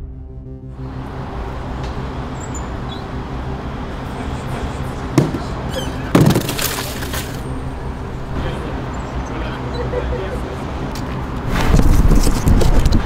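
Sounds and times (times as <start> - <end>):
street hum: 0.0 - 13.0
cardboard box thump on pavement: 6.2 - 6.8.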